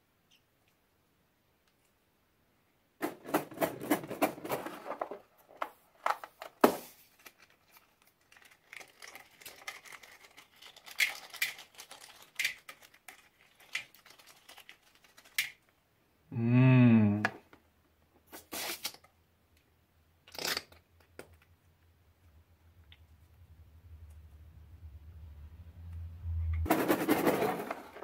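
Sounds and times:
low hummed voice: 16.3 - 17.3.

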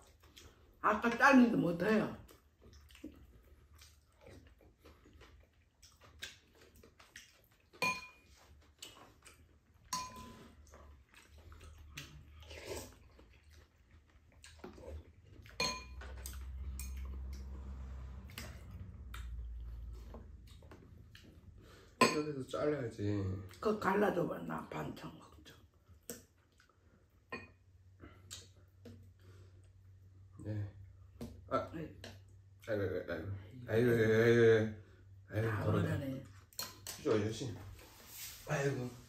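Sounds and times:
utensils tapping ceramic bowls: 9.9 - 10.4, 15.6 - 17.0.

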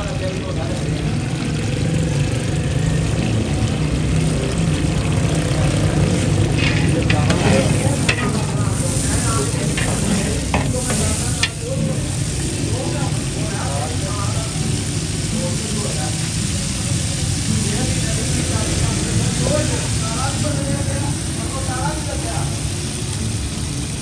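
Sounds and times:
onions sizzling in oil: 0.0 - 24.0
metal ladle scraping pot: 6.4 - 12.2.

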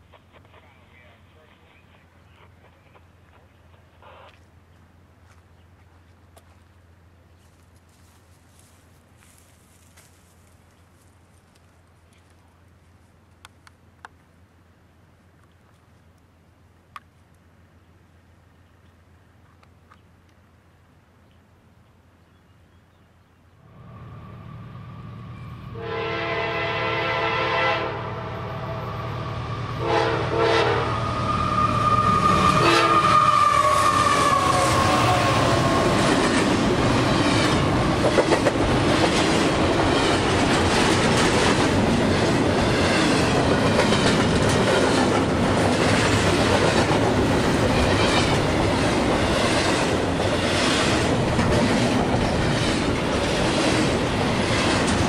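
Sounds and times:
train rumbling past: 23.6 - 55.0
train air horn blasts: 24.0 - 35.8
wheels clickety-clack: 36.0 - 55.0.

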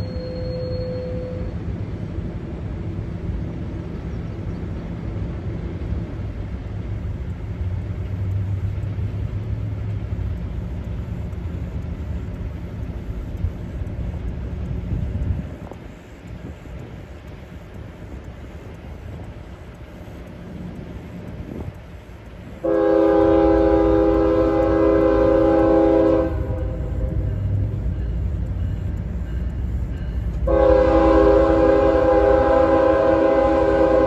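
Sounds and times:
thin high squeal: 0.0 - 1.6
distant diesel locomotives rumbling: 0.0 - 34.0.

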